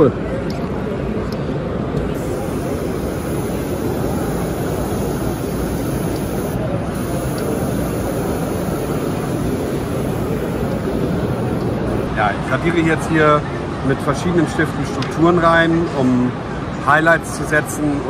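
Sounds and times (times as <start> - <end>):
exhibition hall din: 0.5 - 16.8.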